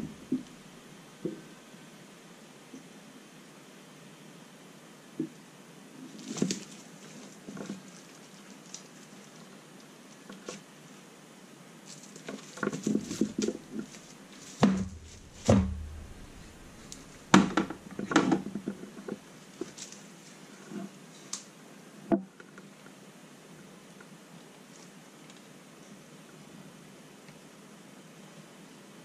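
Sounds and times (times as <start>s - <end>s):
small clicks taps and crinkles: 6.2s - 10.7s, 11.8s - 15.5s, 16.1s - 20.4s
sharp knocks: 14.6s - 18.4s.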